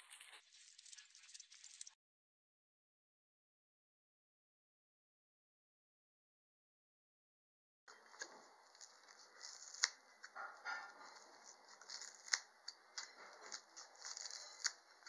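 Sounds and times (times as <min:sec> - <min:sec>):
rustling of petals and leaves: 0:10.6 - 0:15.0.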